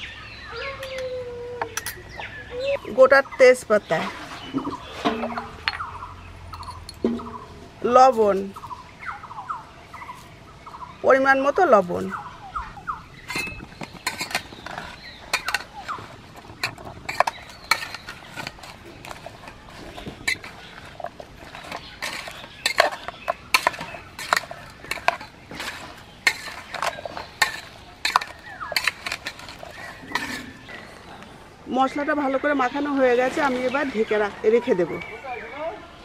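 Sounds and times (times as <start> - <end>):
metal spoon scraping metal pot: 13.2 - 31.0.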